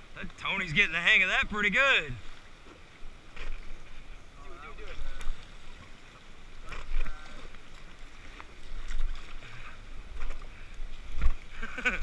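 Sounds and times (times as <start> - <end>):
wind rumbling on microphone: 1.2 - 12.0
paddle splashes and knocks: 4.9 - 11.8.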